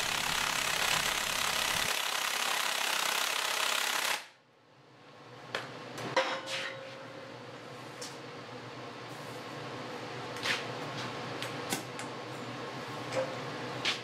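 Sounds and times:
air impact wrench hammering: 0:00.0 - 0:04.3.

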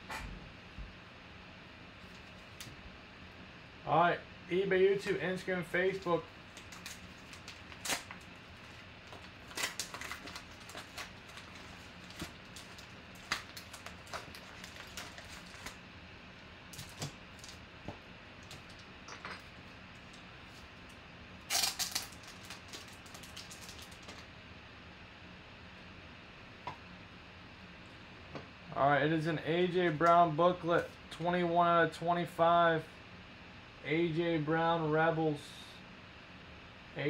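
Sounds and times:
paper envelope rustling and crinkling: 0:05.8 - 0:15.8, 0:21.5 - 0:24.2.

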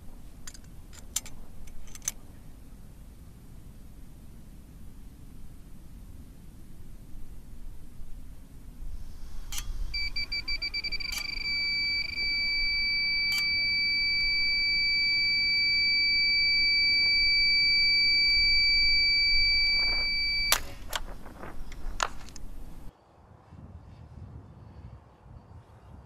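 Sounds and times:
clicks: 0:09.5 - 0:22.9
steady high tone: 0:09.5 - 0:22.9
quick electronic beeps: 0:10.0 - 0:20.8.

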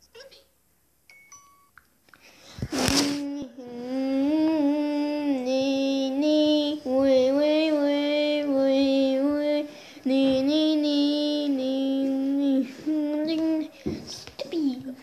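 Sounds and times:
child singing wordless tune: 0:03.0 - 0:15.0.

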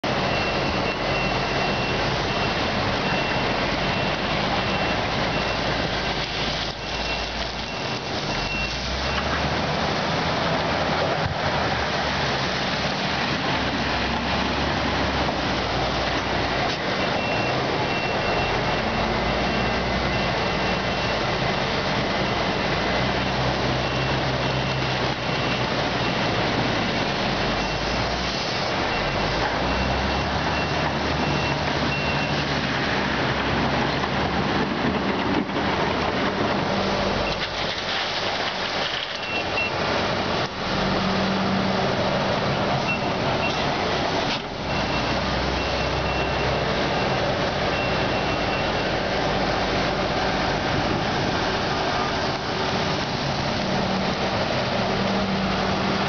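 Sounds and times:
excavator diesel engine under load: 0:00.0 - 0:56.0
high repeating alarm beep: 0:00.1 - 0:06.2, 0:06.8 - 0:09.2, 0:17.0 - 0:21.7, 0:28.9 - 0:32.5, 0:42.9 - 0:43.6, 0:44.7 - 0:49.0
fast river rushing: 0:00.1 - 0:56.0.

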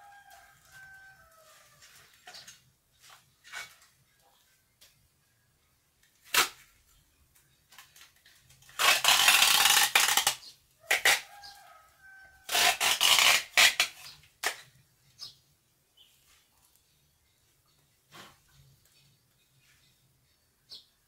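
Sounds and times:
adhesive tape ripping off roll: 0:06.2 - 0:06.7, 0:07.8 - 0:11.6, 0:12.4 - 0:14.7.

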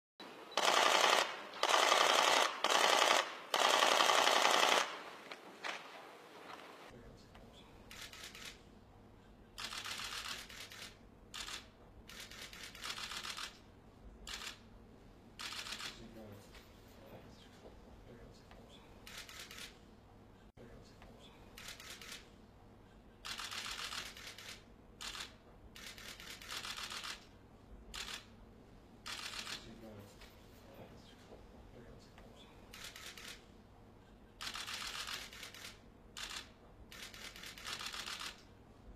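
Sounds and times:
camera shutters clicking: 0:00.6 - 0:05.9, 0:07.9 - 0:08.6, 0:09.6 - 0:13.6, 0:21.6 - 0:22.2, 0:23.2 - 0:27.3, 0:27.9 - 0:28.3, 0:29.1 - 0:29.7, 0:32.7 - 0:33.4, 0:34.4 - 0:38.5.

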